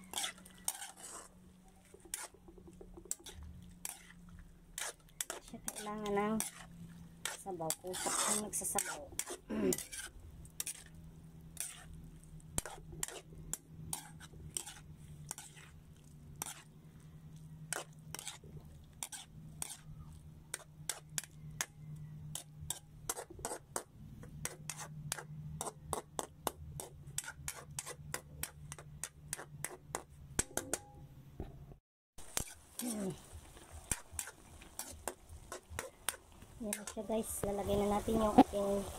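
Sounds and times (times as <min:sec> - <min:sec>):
metal spatula scraping a wok: 0:00.0 - 0:16.8, 0:17.6 - 0:30.1, 0:32.2 - 0:37.4.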